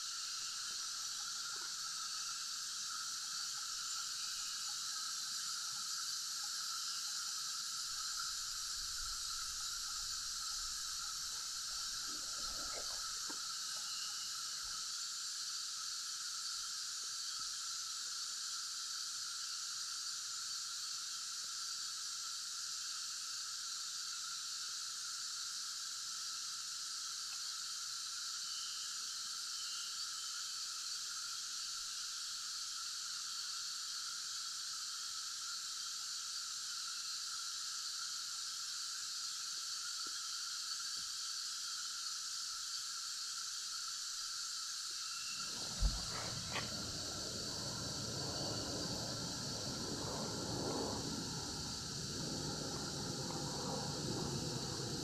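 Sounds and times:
insects chorus: 0.0s - 55.0s
low rumble: 45.4s - 55.0s.

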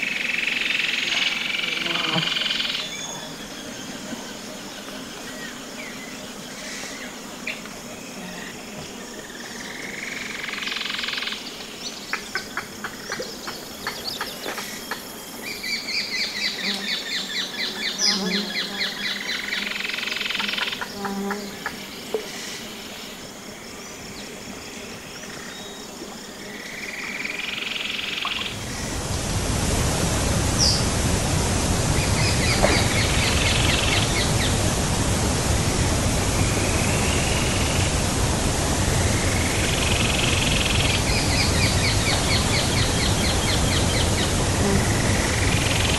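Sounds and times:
insects chirping: 0.0s - 45.9s
waterfall rushing: 28.5s - 45.9s
birds calling: 31.8s - 34.6s.

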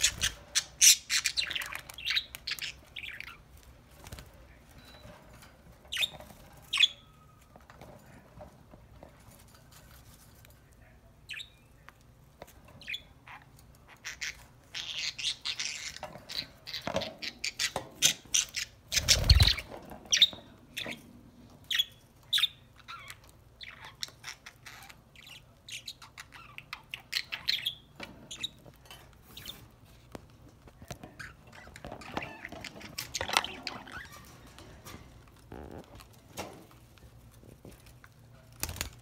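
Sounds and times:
budgerigars chirping: 0.0s - 3.4s.

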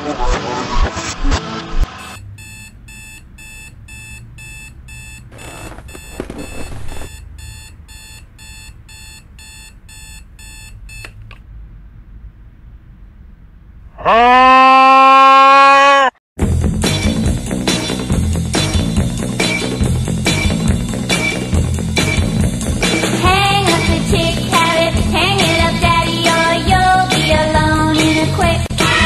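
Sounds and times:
music: 0.0s - 2.0s, 16.4s - 29.0s
alarm clock beeping: 2.2s - 11.0s.

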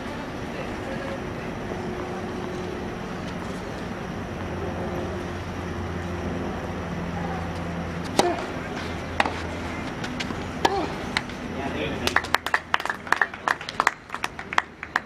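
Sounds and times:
low hum: 0.0s - 12.7s
tennis racket hitting ball: 8.0s - 11.4s.

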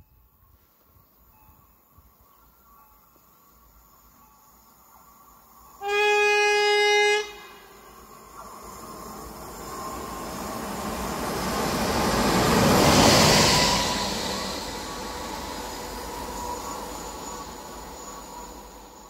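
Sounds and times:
locomotive horn blast: 5.8s - 7.9s
train wheels on rails: 6.6s - 19.0s.

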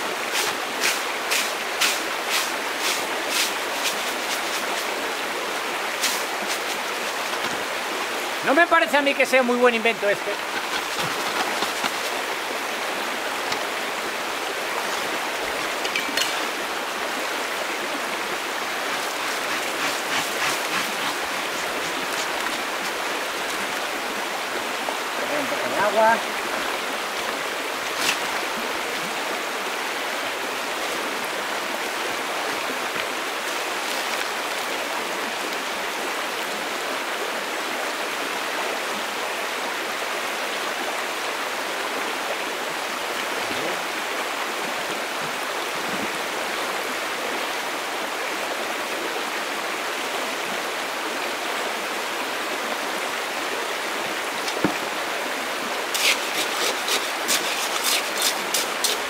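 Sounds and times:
river water flowing: 0.0s - 59.0s.

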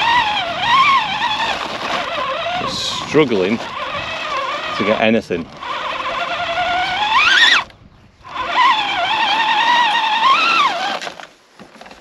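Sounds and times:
electric motor and gears whining: 0.0s - 12.0s.

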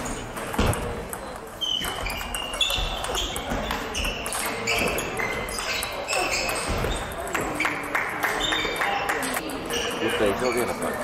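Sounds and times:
ping pong ball clicking: 0.4s - 6.6s.

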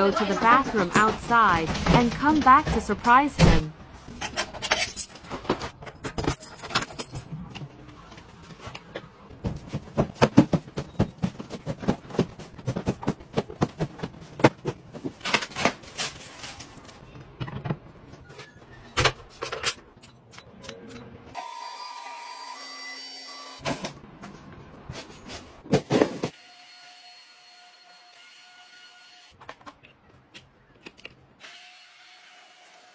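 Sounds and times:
objects and boxes rattling: 0.0s - 21.0s, 23.6s - 26.3s.

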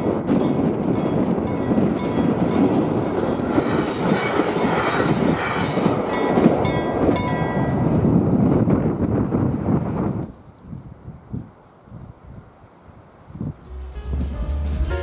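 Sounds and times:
train wheels rattling over rail joints: 0.0s - 8.1s
steady rushing noise: 0.0s - 10.6s.

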